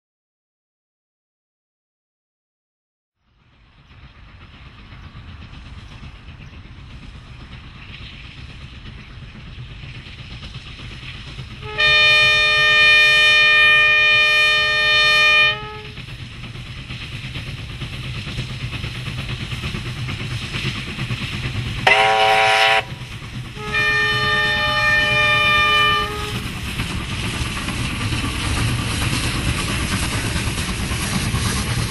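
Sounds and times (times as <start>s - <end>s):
steam locomotive rumbling: 3.2s - 31.9s
steam whistle blast: 11.6s - 16.0s, 21.9s - 23.0s, 23.6s - 26.4s.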